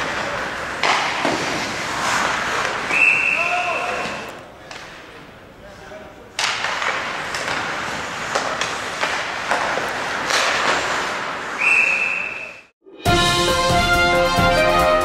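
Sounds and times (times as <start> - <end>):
hockey sticks clacking on puck: 0.0 - 11.6
referee's whistle: 2.9 - 4.3, 11.6 - 12.7.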